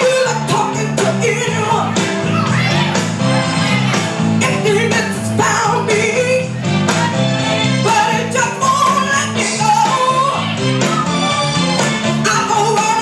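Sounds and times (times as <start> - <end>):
instrumental accompaniment: 0.0 - 13.0
woman singing soul song: 7.8 - 11.2.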